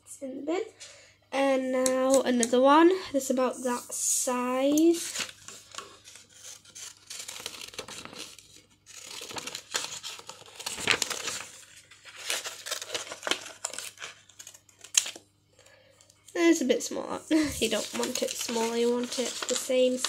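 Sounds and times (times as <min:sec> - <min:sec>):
paper rustling: 0:04.7 - 0:15.2, 0:17.3 - 0:20.0
scissors snipping paper: 0:06.1 - 0:11.4.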